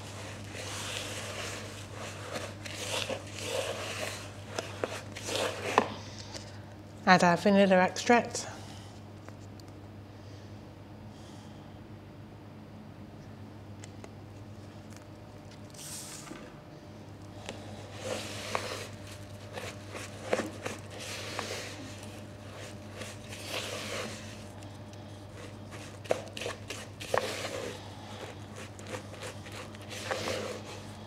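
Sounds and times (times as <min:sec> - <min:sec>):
spoon scraping and crunching in bowl: 0:18.0 - 0:31.0.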